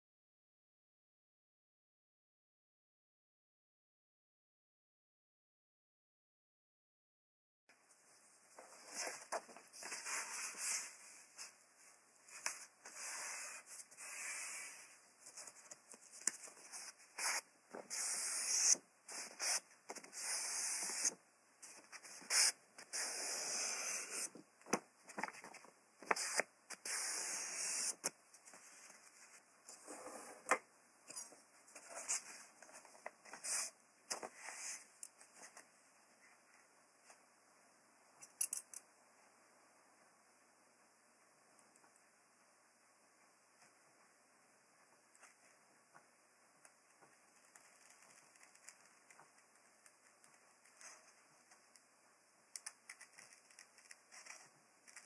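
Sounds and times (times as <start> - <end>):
paper rubbing on desk mat: 12.4 - 15.6.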